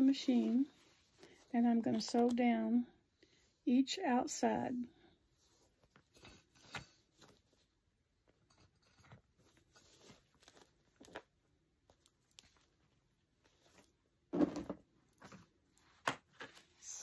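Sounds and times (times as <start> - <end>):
pouch rustling and clicking: 8.6 - 12.7.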